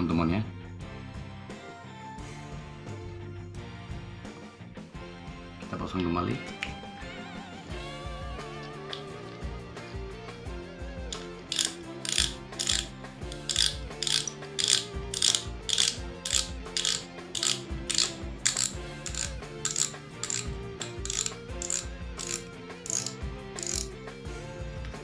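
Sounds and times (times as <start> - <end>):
fishing reel drag clicking: 11.1 - 24.0.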